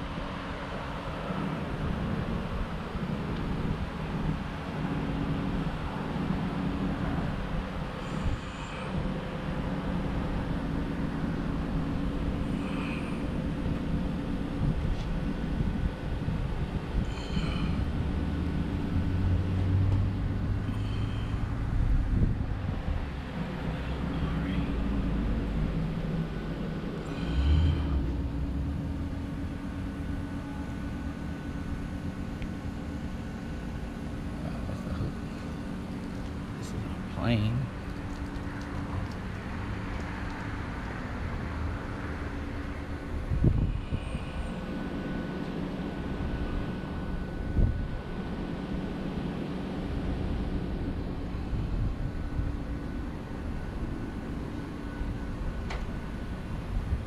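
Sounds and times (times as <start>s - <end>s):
low hum: 0.0s - 57.0s
low mechanical rumble: 0.0s - 57.0s.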